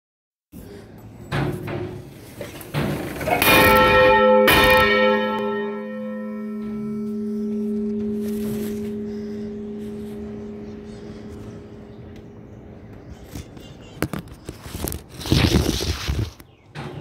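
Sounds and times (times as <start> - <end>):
church bell humming: 3.3 - 12.8.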